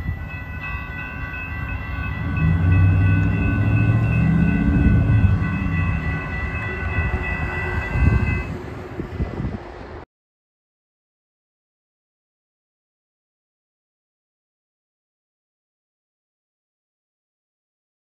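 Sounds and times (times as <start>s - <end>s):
crossing warning bell ringing: 0.0s - 9.0s
low rumble: 1.6s - 10.0s.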